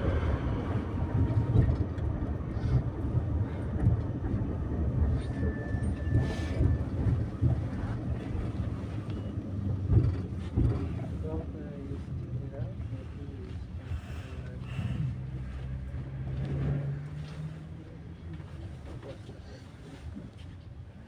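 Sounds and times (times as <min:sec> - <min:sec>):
tram rumbling on rails: 0:00.0 - 0:21.0
wheels knocking on track: 0:09.5 - 0:11.0.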